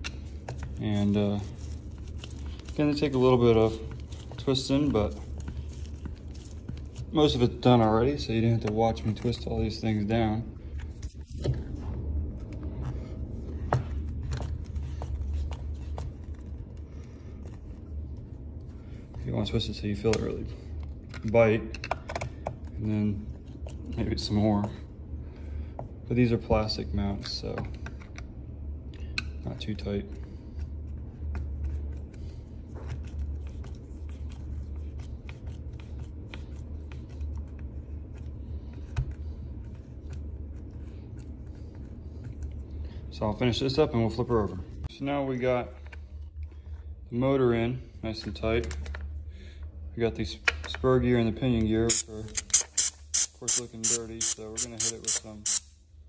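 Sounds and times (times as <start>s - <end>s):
steady low hum: 0.0s - 56.0s
screwdriver clicking and scraping: 51.9s - 55.7s.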